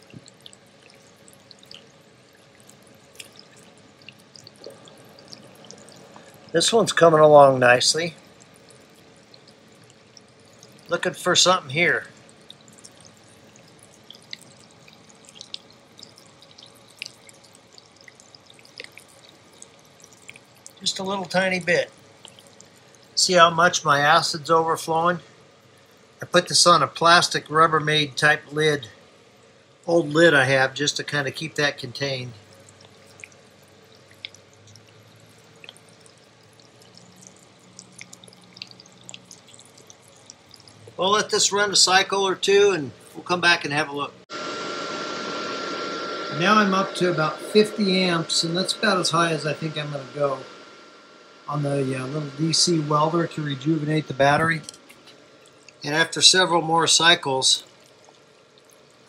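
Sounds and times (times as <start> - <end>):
battery electrolyte bubbling ticks: 0.0 - 24.5, 30.5 - 43.3, 51.6 - 59.0
low hiss: 0.0 - 59.0
low steady hum: 0.0 - 59.0.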